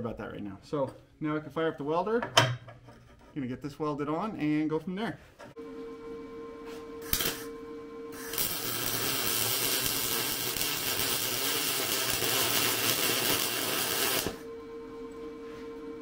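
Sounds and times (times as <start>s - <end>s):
welding arc crackling: 7.0s - 7.5s, 8.2s - 14.4s.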